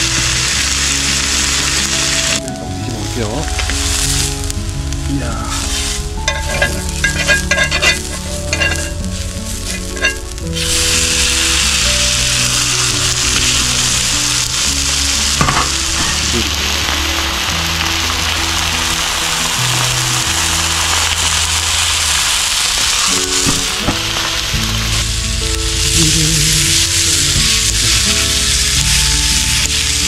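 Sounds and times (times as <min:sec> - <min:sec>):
steak sizzling on a griddle: 0:00.0 - 0:30.0.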